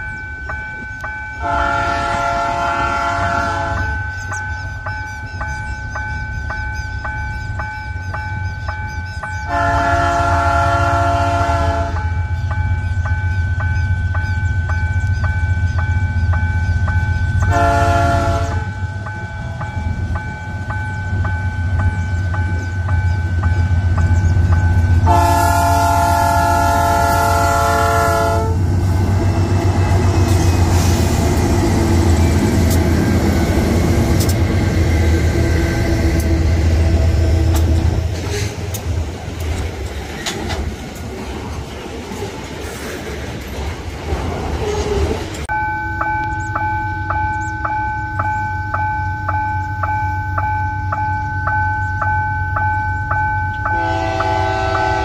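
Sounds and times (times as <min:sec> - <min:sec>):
locomotive engine rumble: 0:00.0 - 0:55.0
train wheels clattering on rails: 0:00.0 - 0:55.0
locomotive chord horn: 0:01.4 - 0:04.0, 0:09.5 - 0:12.2, 0:17.4 - 0:18.8, 0:25.0 - 0:33.1, 0:53.5 - 0:55.0.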